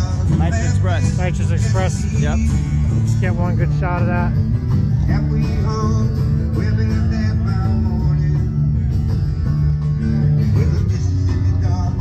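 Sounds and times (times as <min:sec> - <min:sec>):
guitars: 0:00.0 - 0:12.0
steady bass line: 0:00.0 - 0:12.0
person singing: 0:10.4 - 0:12.0.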